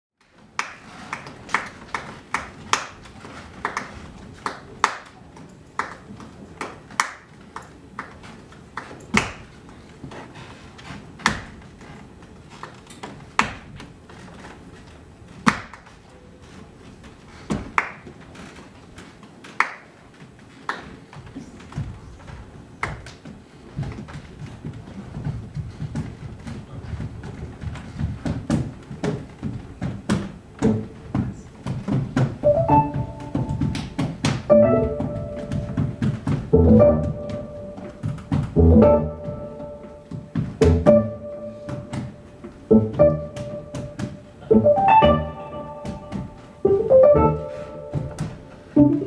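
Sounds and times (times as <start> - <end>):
low steady sound: 34.5 - 49.0.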